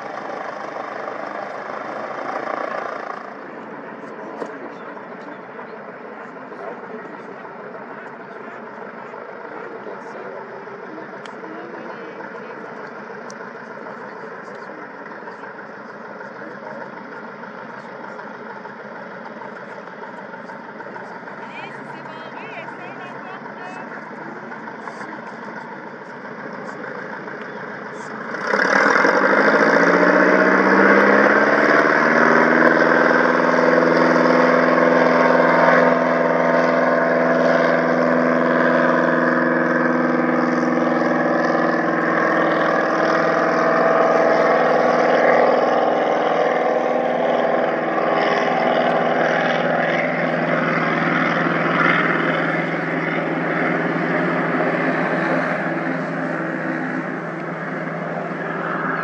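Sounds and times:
propeller plane engine: 0.0s - 59.0s.

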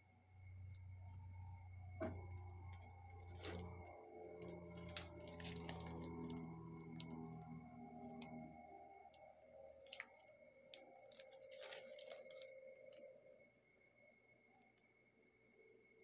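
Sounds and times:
cellophane crinkling: 2.8s - 8.4s, 9.8s - 13.0s.

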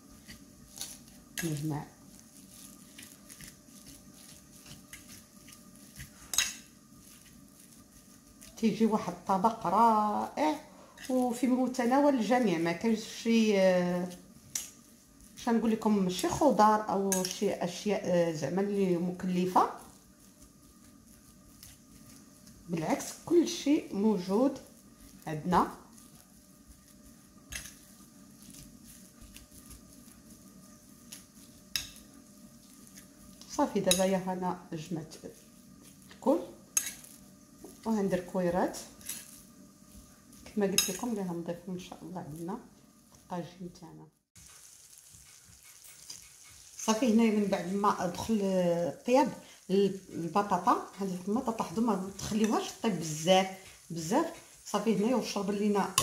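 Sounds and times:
soft squishing of meat: 0.1s - 9.4s, 24.6s - 33.6s
fork scraping a ceramic plate: 36.8s - 37.2s.

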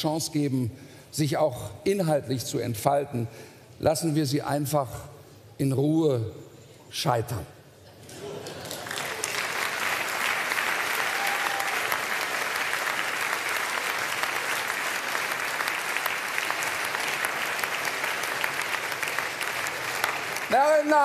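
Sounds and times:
large audience applauding: 8.1s - 21.0s.

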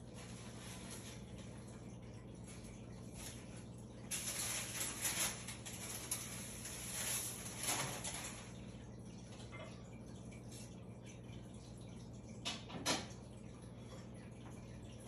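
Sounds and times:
rustling and scraping: 0.2s - 1.5s, 3.2s - 8.5s.

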